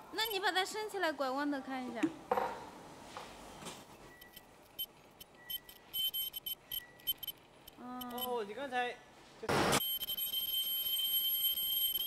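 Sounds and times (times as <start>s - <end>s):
short high-pitched bursts: 5.5s - 7.4s
faint steady high tone: 9.8s - 12.0s.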